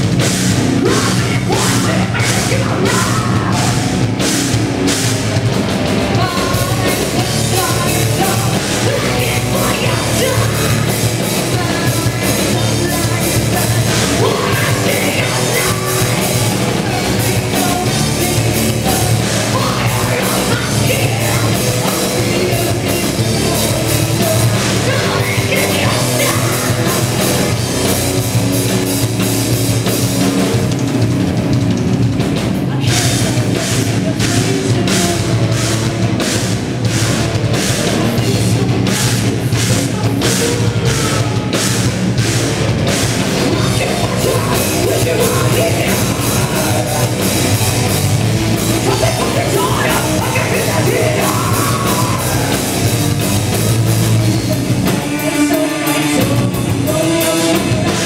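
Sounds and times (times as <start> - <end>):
singer's vocals: 0.0 - 4.0, 6.0 - 28.2, 32.6 - 58.0
bass guitar: 0.0 - 58.0
distorted electric guitars: 0.0 - 58.0
drum kit: 0.0 - 58.0.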